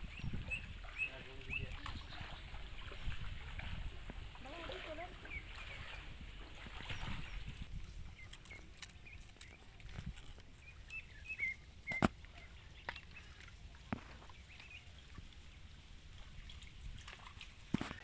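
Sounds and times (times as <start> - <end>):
bird chirps: 0.0 - 2.6, 10.6 - 13.4.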